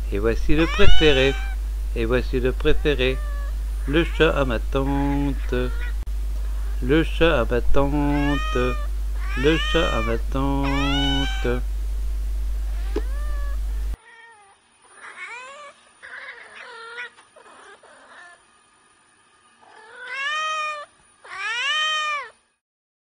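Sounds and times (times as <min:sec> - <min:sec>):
steady low hum: 0:00.0 - 0:21.3
cat meowing: 0:00.6 - 0:01.6, 0:02.8 - 0:03.5, 0:08.0 - 0:11.6, 0:12.8 - 0:17.1, 0:19.7 - 0:22.4.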